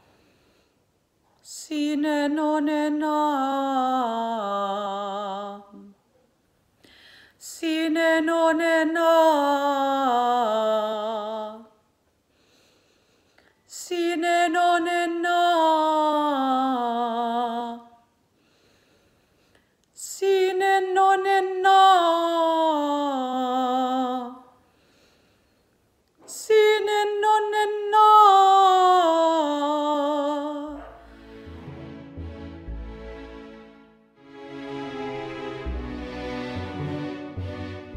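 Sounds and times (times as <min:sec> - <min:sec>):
woman singing classical vocalise: 0:01.4 - 0:06.0, 0:07.4 - 0:11.9, 0:13.7 - 0:18.2, 0:20.0 - 0:24.6, 0:26.2 - 0:30.8.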